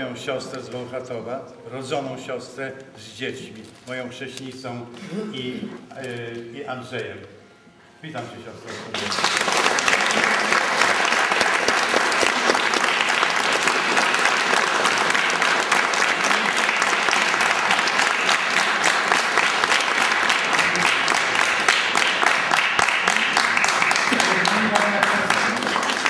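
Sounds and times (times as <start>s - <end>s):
audience applauding: 8.8s - 26.0s.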